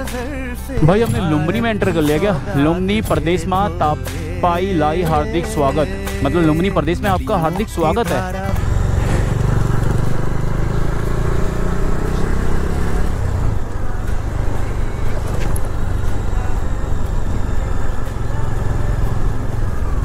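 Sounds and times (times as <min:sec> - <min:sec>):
motorcycle engine running: 0:00.7 - 0:20.0
wind and road noise: 0:07.7 - 0:20.0.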